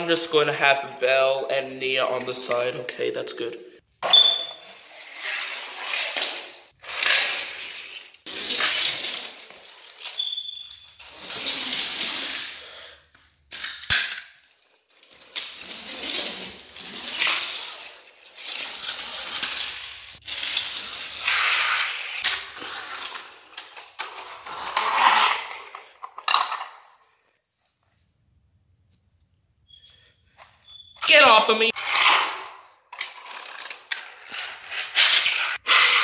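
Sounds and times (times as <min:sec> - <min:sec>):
toy trains and track rattling: 0:04.8 - 0:10.2, 0:13.5 - 0:26.7, 0:31.8 - 0:36.0.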